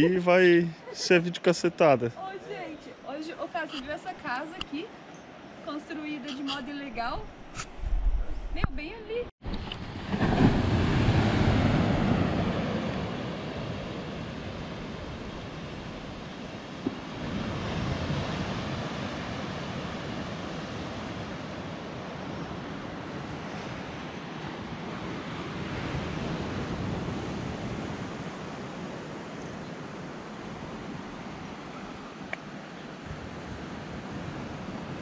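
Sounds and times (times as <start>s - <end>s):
wind on microphone: 6.3s - 32.3s
ocean surf on rocky shore: 9.4s - 35.0s.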